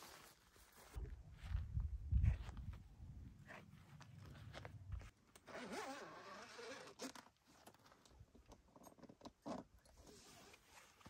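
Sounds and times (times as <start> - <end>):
zipper pulled open: 5.4 - 7.4, 9.4 - 11.0.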